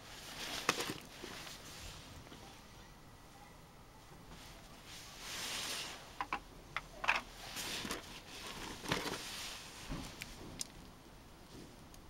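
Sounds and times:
rustle in cardboard box: 4.3s - 6.1s, 7.4s - 10.4s.

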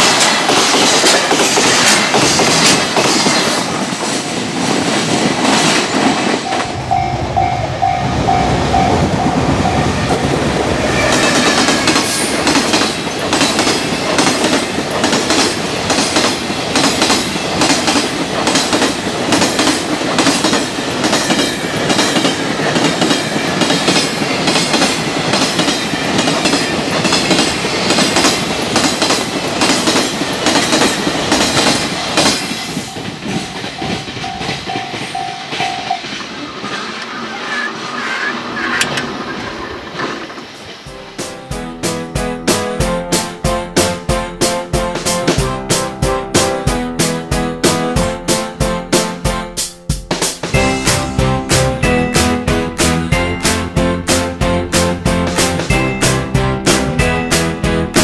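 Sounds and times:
freight train wheels clattering: 0.0s - 37.1s
level-crossing warning bell dinging: 6.3s - 36.4s, 55.6s - 57.9s.

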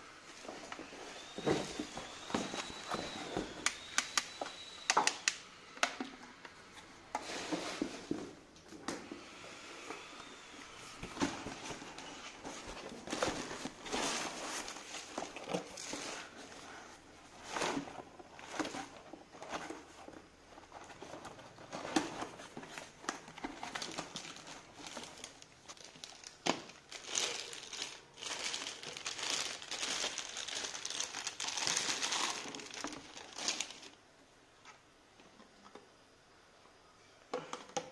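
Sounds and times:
cardboard and plastic rustling: 0.2s - 5.3s, 6.7s - 9.2s, 10.6s - 34.0s.

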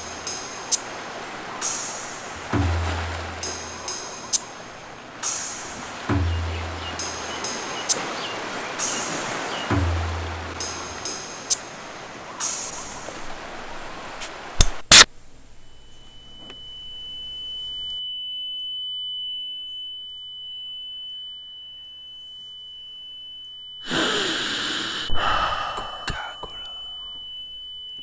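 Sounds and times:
loud breathy sigh: 23.8s - 27.2s.

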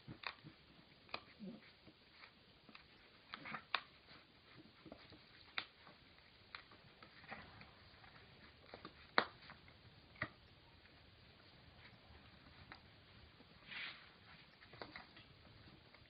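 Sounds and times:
claws on tile floor: 0.0s - 16.0s
dog chewing hard stick: 0.0s - 16.0s.

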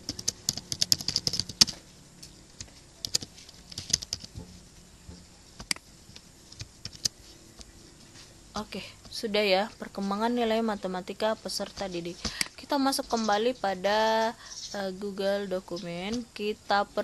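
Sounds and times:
keyboard typing: 0.0s - 1.8s, 2.6s - 4.5s, 5.1s - 7.7s.

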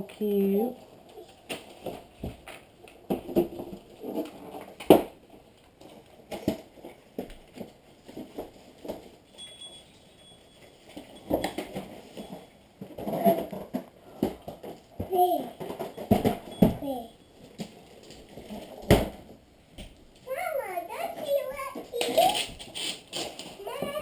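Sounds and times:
wrapping rustling: 20.1s - 24.0s.

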